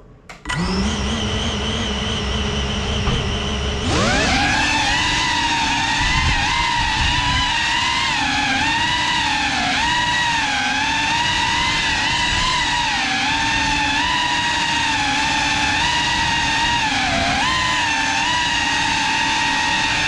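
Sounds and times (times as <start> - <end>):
drone motors whining: 0.4 - 20.0.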